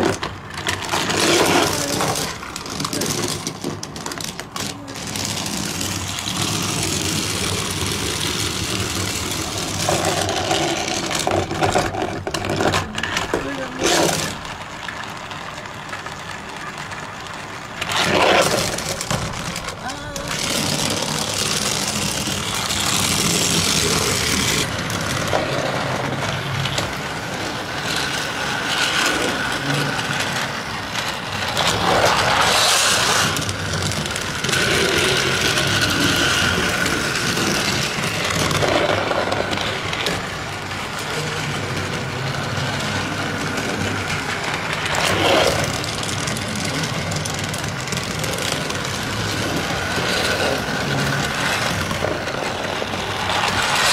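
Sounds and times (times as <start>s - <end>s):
plastic rattling: 0.0s - 53.9s
small electric motors whining: 0.0s - 53.9s.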